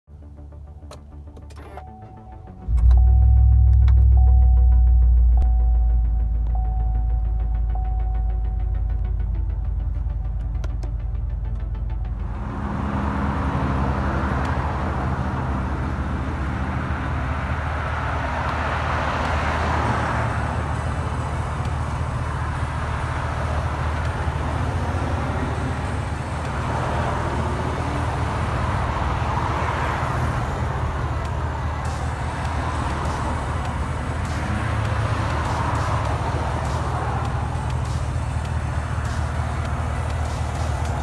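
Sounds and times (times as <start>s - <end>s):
pickup truck engine idling: 20.1s - 41.0s.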